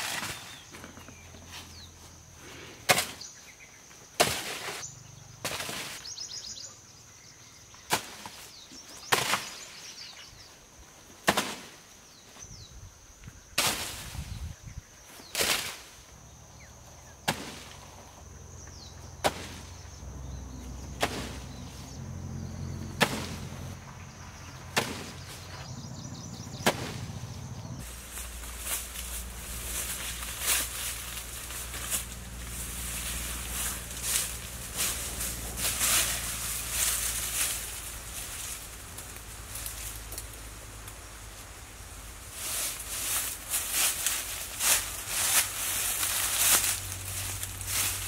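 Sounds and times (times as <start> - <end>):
spear striking with sharp thuds: 19.2 - 19.6, 21.0 - 21.4, 23.0 - 23.4, 24.8 - 25.2, 26.6 - 27.0.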